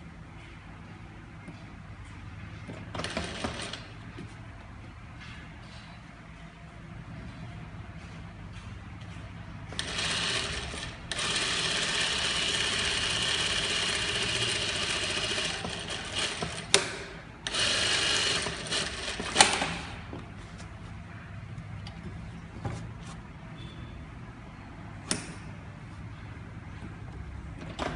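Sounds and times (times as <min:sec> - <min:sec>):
sewing machine running: 0:02.9 - 0:03.9, 0:09.7 - 0:20.0.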